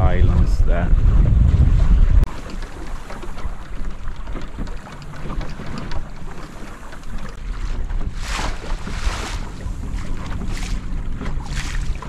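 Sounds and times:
gusty wind on microphone: 0.0s - 2.4s
water slapping against hull: 0.0s - 12.0s.

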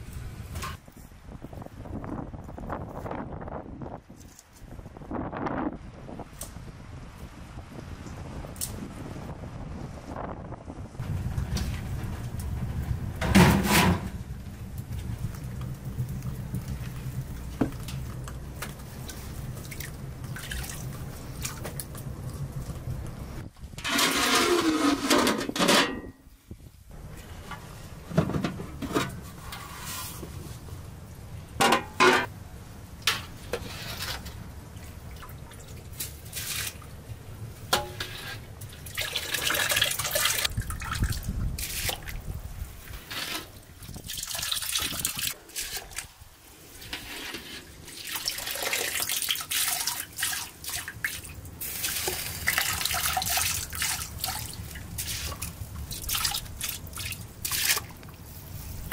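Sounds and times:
water splashing and dripping: 14.2s - 23.4s, 34.4s - 58.9s.

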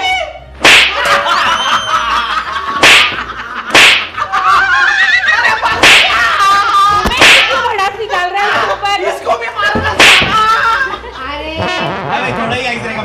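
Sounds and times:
loud sharp slaps: 0.6s - 1.2s, 2.8s - 4.2s, 5.7s - 6.3s, 7.0s - 7.6s, 9.9s - 10.5s
people laughing: 0.9s - 11.6s.

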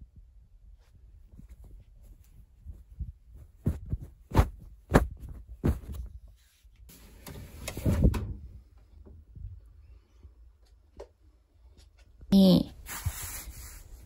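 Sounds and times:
fabric rustling: 0.7s - 8.0s, 12.8s - 14.0s
muffled thumps of duvet: 0.8s - 6.4s.

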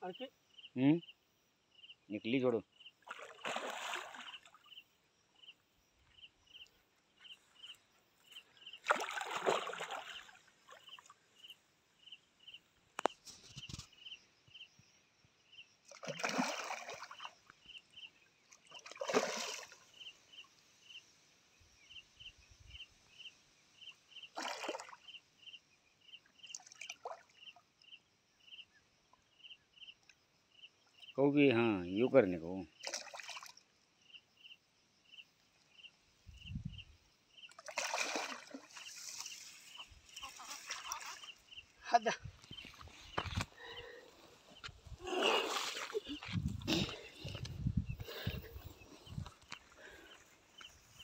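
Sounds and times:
insect chirps: 0.0s - 51.0s
water splashing: 3.0s - 4.6s, 8.8s - 11.1s, 15.9s - 17.4s, 18.6s - 19.9s, 24.4s - 25.0s, 37.5s - 41.4s, 42.4s - 47.4s.

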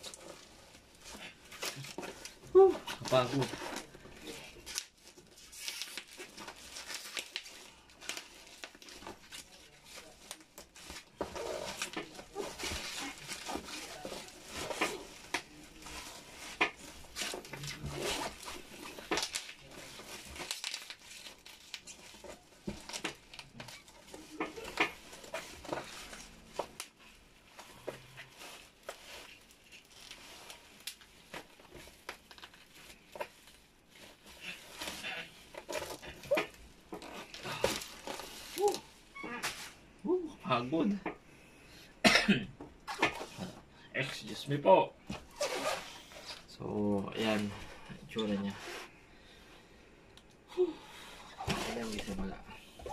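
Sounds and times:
bubble wrap crinkling: 0.0s - 41.2s, 42.8s - 49.0s, 50.2s - 52.9s
packing wrap tearing: 1.6s - 27.0s, 28.2s - 39.8s.

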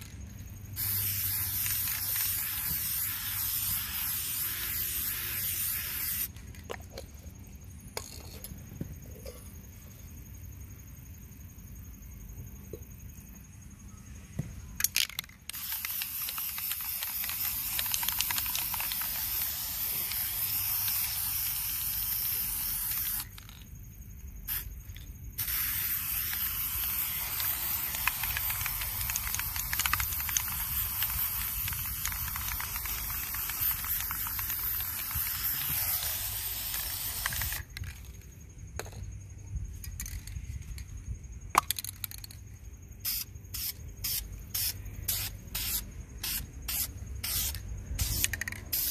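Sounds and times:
spray paint can hissing: 0.0s - 7.0s, 14.9s - 23.6s, 24.5s - 38.0s, 43.0s - 48.9s.

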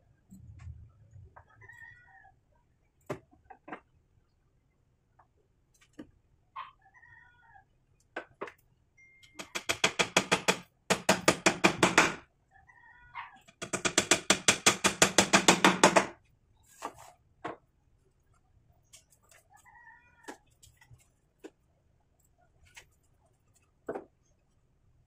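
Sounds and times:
hammer driving nails into wood: 9.4s - 12.2s, 13.6s - 16.2s.

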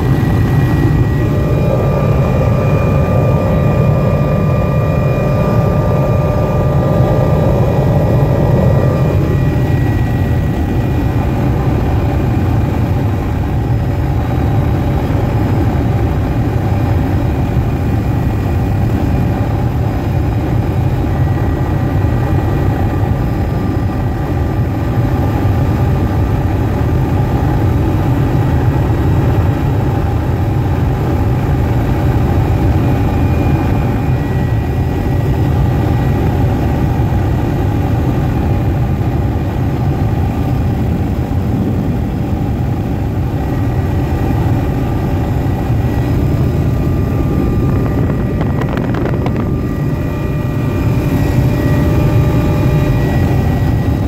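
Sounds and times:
thin whining tones: 0.0s - 12.7s
helicopter engine and rotor drone: 0.0s - 54.0s.

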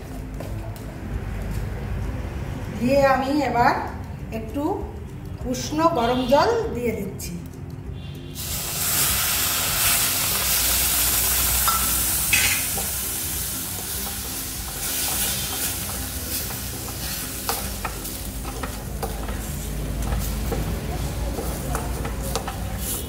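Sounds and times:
water sizzling in hot pan: 8.3s - 23.0s.

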